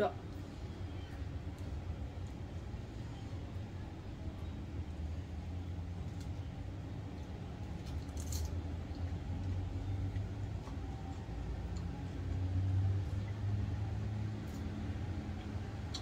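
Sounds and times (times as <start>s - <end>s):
low background hum: 0.0s - 16.0s
soft eating clicks: 7.0s - 13.4s, 14.4s - 16.0s.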